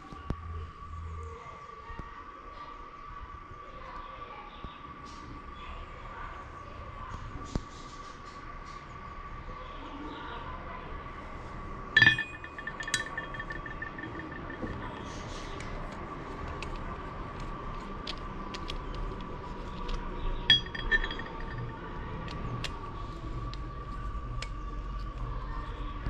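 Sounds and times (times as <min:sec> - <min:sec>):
steady high hum: 0:11.4 - 0:18.4, 0:19.4 - 0:25.8
metal strike ringing: 0:12.0 - 0:15.1, 0:20.5 - 0:21.7
metal pieces clinking: 0:12.0 - 0:15.2, 0:20.5 - 0:21.8.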